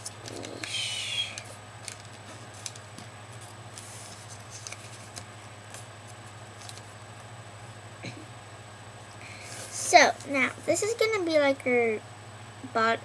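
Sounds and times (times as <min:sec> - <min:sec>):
low hum: 0:00.0 - 0:10.8
paper being folded and creased: 0:03.4 - 0:06.9.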